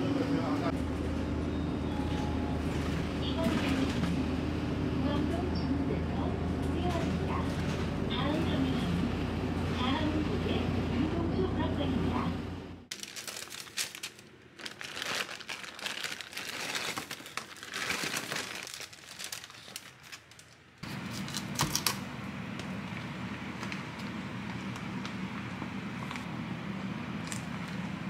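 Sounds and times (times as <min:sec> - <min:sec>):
steady low hum: 0:00.0 - 0:12.9
paper crinkling and rustling: 0:12.9 - 0:21.9.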